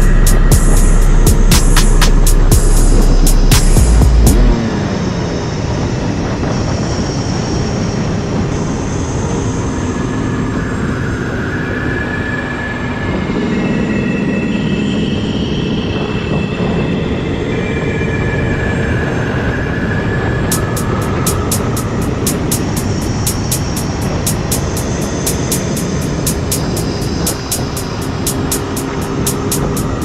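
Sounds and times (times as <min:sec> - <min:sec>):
dirt bike engine running: 0:00.0 - 0:04.7, 0:20.5 - 0:30.0
wind rush on microphone: 0:00.0 - 0:30.0.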